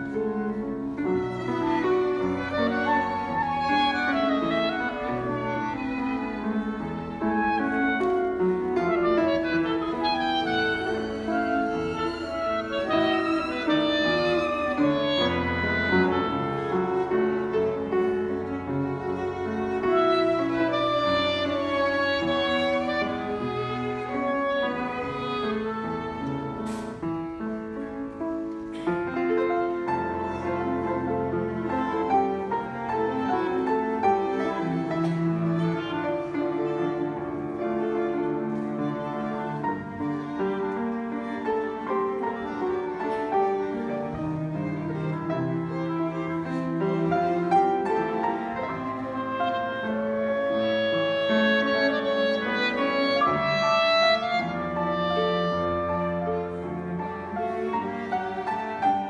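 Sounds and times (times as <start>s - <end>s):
bowed strings: 0.0s - 27.3s, 28.9s - 59.0s
piano: 0.0s - 59.0s
clarinet holding long notes: 1.7s - 17.8s, 47.6s - 57.2s.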